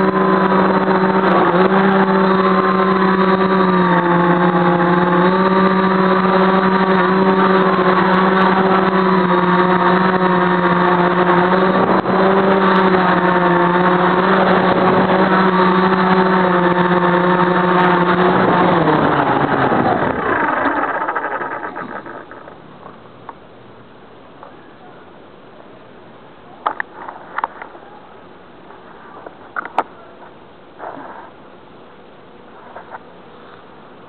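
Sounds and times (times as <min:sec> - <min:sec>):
drone motors humming: 0:00.0 - 0:23.9.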